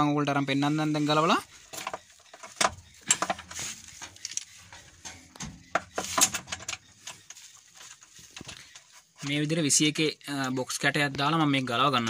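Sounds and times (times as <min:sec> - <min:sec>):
metallic clicks and taps on engine: 0:01.7 - 0:08.9.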